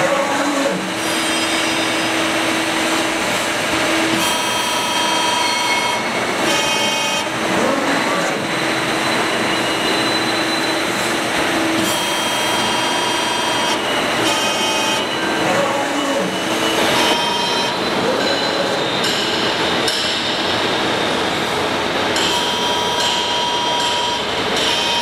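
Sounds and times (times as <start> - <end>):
whining motor tones: 0.0 - 19.1
machine hiss and hum: 0.0 - 25.0.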